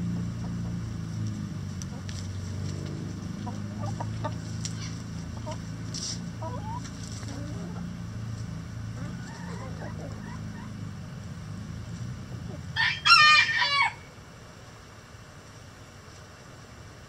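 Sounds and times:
steady low hum: 0:00.0 - 0:17.0
hens clucking softly: 0:00.1 - 0:01.2, 0:01.8 - 0:08.1, 0:08.9 - 0:10.9.

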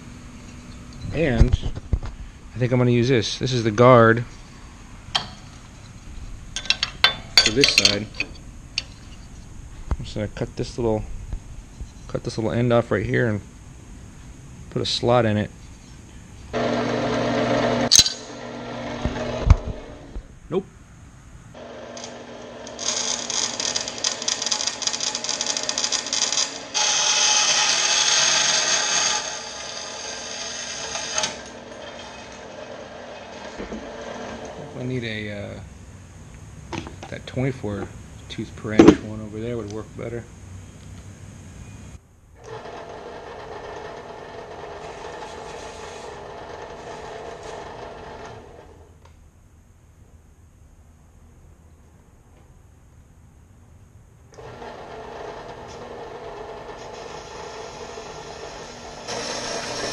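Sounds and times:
faint machine hum: 0:00.0 - 0:59.9
metal-cutting bandsaw cutting: 0:16.6 - 0:19.9, 0:21.6 - 0:34.7, 0:42.4 - 0:48.7, 0:54.4 - 0:59.9.

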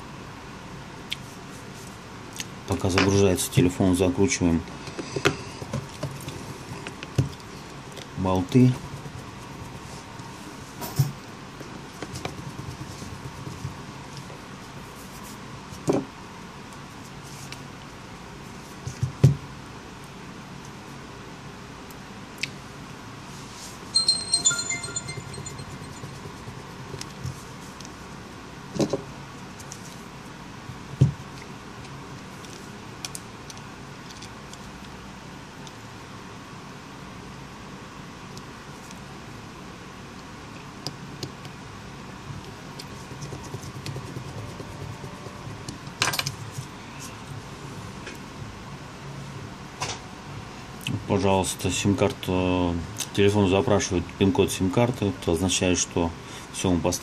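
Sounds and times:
bright tinkling startup chime: 0:23.9 - 0:26.2.

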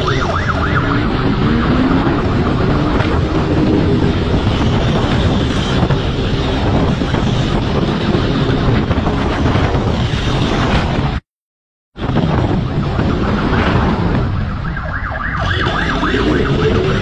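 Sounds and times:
wind buffeting microphone: 0:00.0 - 0:11.2, 0:12.0 - 0:17.0.

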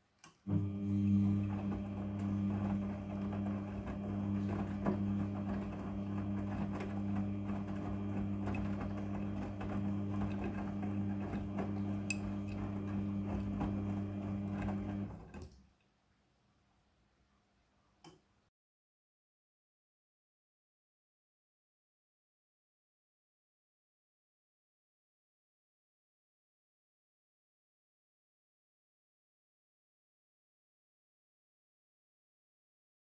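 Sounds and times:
washing machine motor hum: 0:00.4 - 0:15.6
laundry tumbling in drum: 0:01.2 - 0:15.4.

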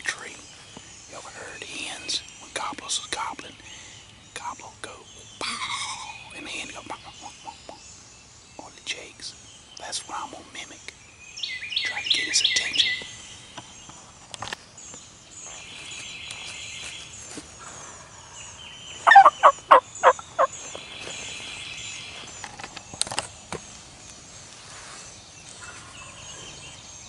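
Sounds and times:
songbirds chirping: 0:00.0 - 0:27.0
turkey calling: 0:19.0 - 0:20.6.

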